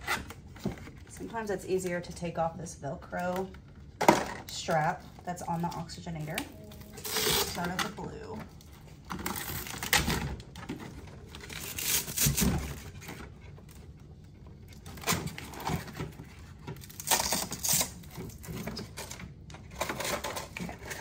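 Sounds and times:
velcro ripping: 11.6s - 12.4s, 17.0s - 18.0s.

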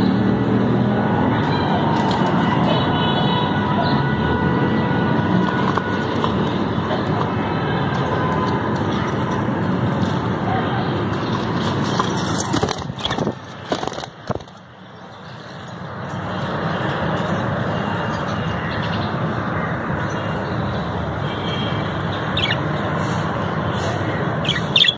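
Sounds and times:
budgie chirping: 22.4s - 22.6s, 24.4s - 24.9s.

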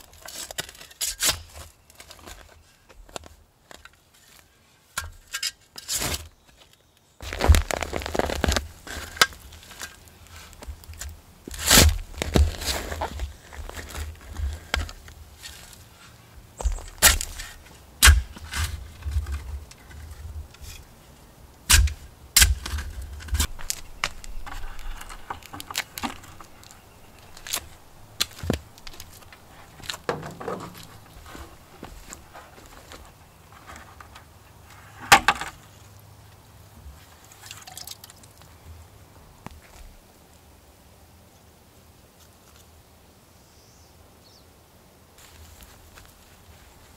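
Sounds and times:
shovel scraping soil: 0.0s - 2.4s, 4.2s - 6.4s, 7.2s - 20.9s, 21.7s - 35.5s
dirt thudding: 16.6s - 19.4s, 21.7s - 33.0s.

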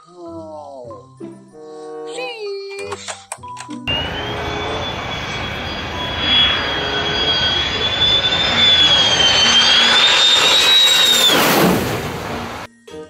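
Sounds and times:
jet engine whine and roar: 3.9s - 12.7s.

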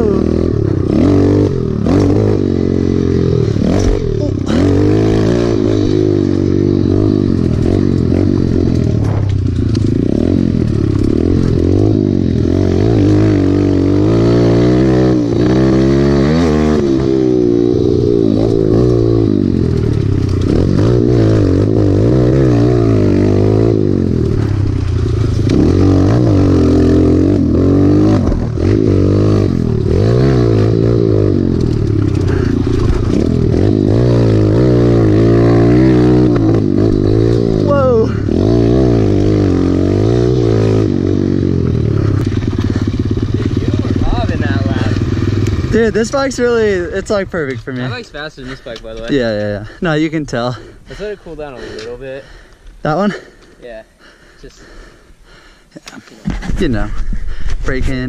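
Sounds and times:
trail bike engine revving: 0.0s - 58.0s
bike rattling over rough ground: 3.4s - 14.6s, 16.9s - 23.0s, 24.0s - 38.0s, 41.6s - 53.7s.

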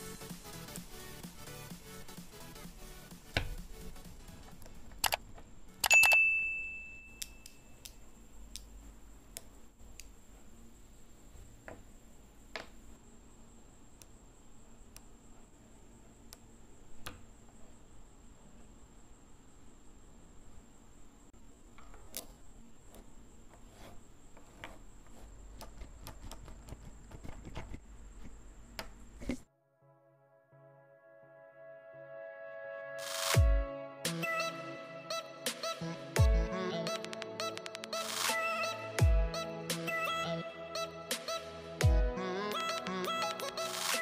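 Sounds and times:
magnetic balls clicking: 4.5s - 6.2s
high metallic ring: 5.9s - 7.8s.

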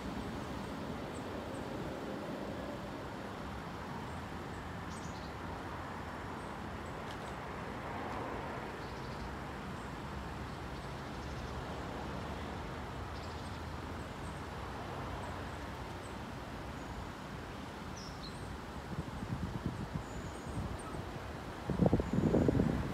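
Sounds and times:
distant road traffic hum: 0.0s - 22.9s.

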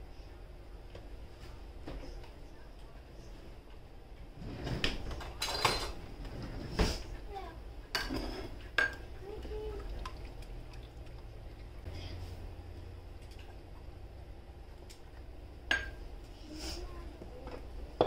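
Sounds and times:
metal cup and dishes clinking: 15.7s - 16.0s.

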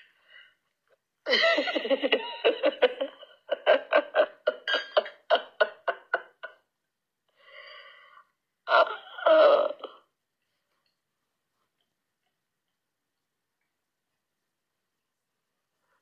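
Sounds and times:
person laughing: 1.3s - 6.6s.

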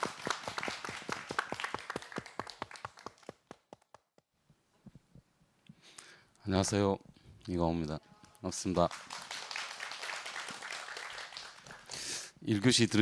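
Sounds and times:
audience applauding: 0.0s - 4.1s, 8.7s - 12.1s.

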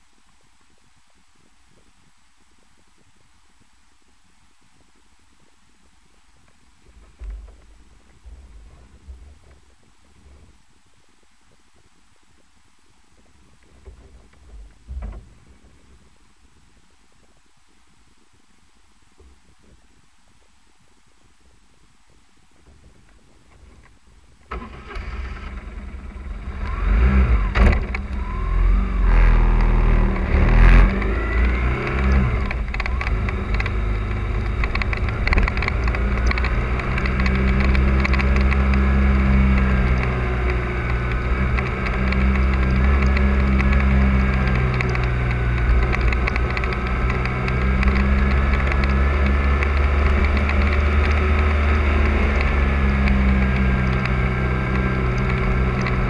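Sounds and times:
wind noise on microphone: 0.0s - 56.0s
motorcycle engine revving: 24.5s - 56.0s.

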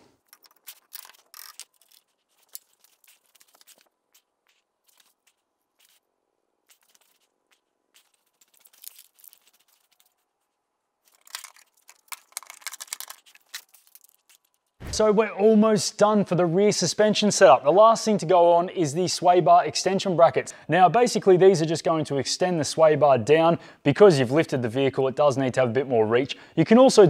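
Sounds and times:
hand tools clicking and scraping: 0.0s - 6.0s.

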